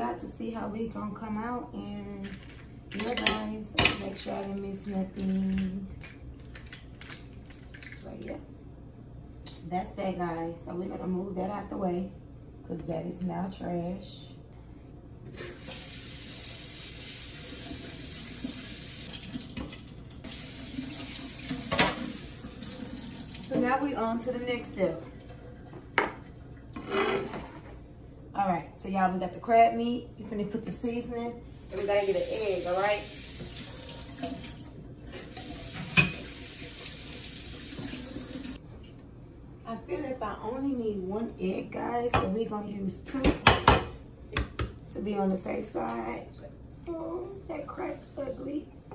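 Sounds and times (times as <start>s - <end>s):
faucet running into steel sink: 15.4s - 23.7s, 31.8s - 38.6s.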